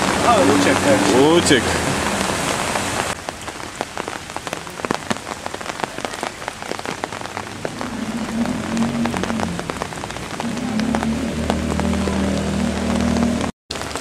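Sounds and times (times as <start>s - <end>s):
heavy rain on pavement: 0.0s - 14.0s
car engine hum: 7.4s - 13.5s.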